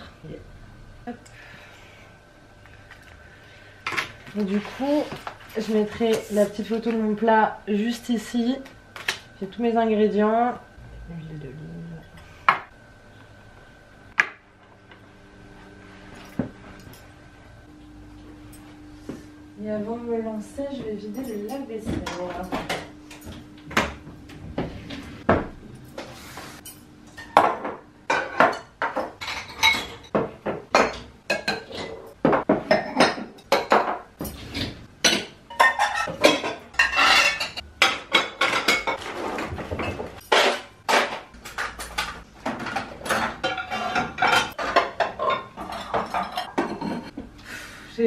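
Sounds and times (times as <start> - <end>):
dishes and cutlery clinking: 25.9 - 47.2.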